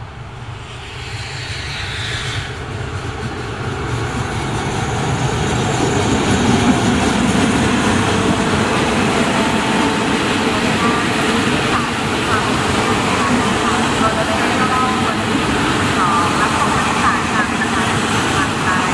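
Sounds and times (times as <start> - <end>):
diesel locomotive engine: 0.0 - 18.9.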